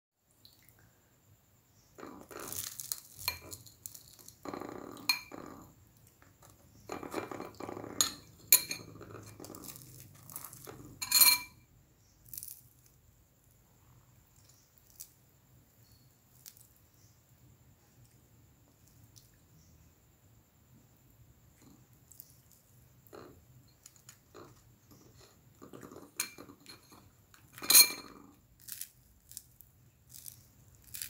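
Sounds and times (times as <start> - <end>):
cutlery clatter: 2.0 - 5.5, 6.9 - 11.6, 23.1 - 28.4
knife and spoon clinking on plate: 6.9 - 11.6, 23.2 - 28.3.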